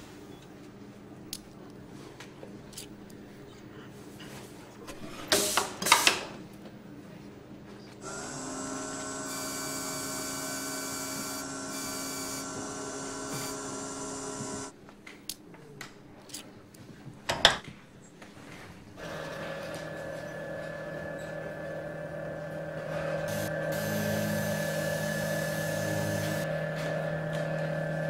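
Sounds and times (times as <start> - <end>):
small electric motor running: 8.0 - 14.7, 22.9 - 27.0
hiss of tool on spinning wheel: 23.3 - 26.5.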